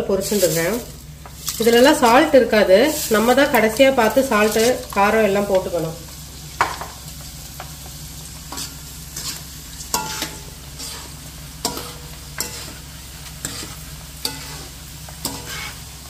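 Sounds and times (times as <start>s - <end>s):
chips sizzling in hot oil: 0.0s - 16.0s
skimmer scraping pan: 8.5s - 15.9s.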